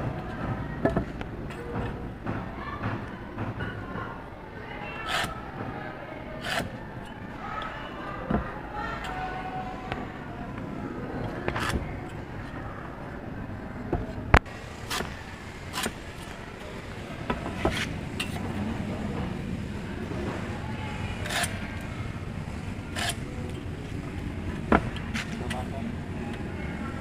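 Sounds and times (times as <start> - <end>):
steady background noise: 0.0 - 27.0
tool scraping concrete blocks: 5.0 - 5.4, 6.4 - 6.8, 14.8 - 16.4, 17.3 - 18.4, 21.2 - 21.6, 22.9 - 23.3.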